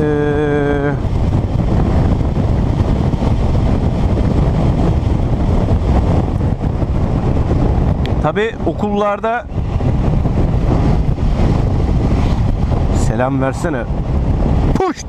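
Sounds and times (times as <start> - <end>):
road noise: 0.0 - 15.0
wind buffeting microphone: 0.0 - 15.0.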